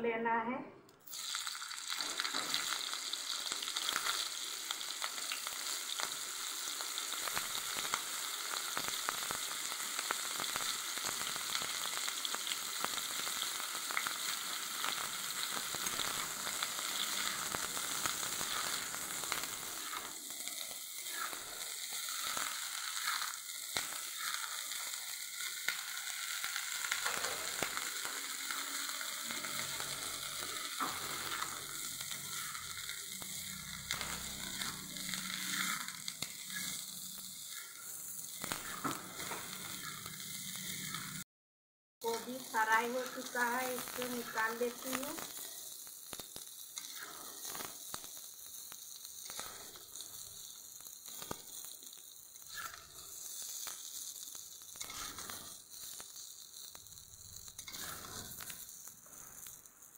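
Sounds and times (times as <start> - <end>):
frying sizzle with small pops: 1.0 - 41.2, 42.0 - 59.9
metal spatula scraping pan: 57.5 - 58.8.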